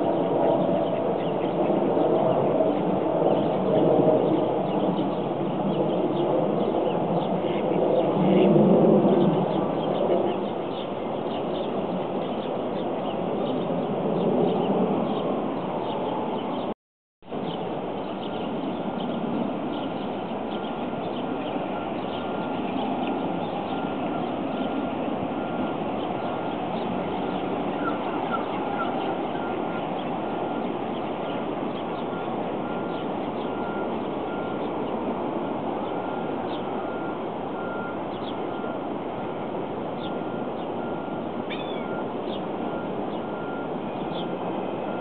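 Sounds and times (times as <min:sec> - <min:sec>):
outdoor background rumble: 0:00.0 - 0:45.0
small birds chirping: 0:09.1 - 0:16.7, 0:17.4 - 0:35.2, 0:35.8 - 0:38.8, 0:40.0 - 0:44.9
faint bird chirps: 0:40.0 - 0:44.4.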